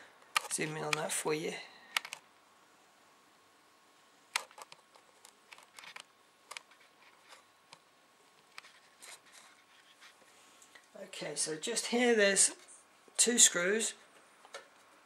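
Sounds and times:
faint room noise: 0:00.0 - 0:15.0.

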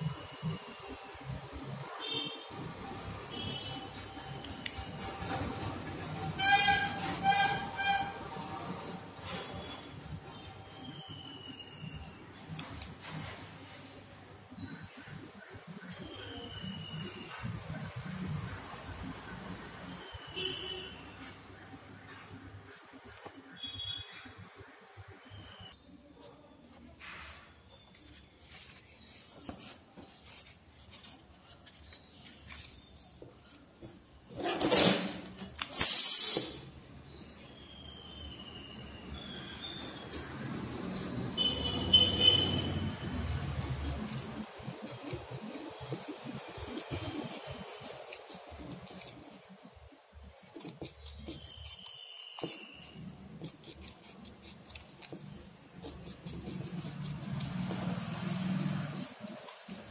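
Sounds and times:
paper rustling: 0:26.2 - 0:36.0, 0:39.2 - 0:59.9.

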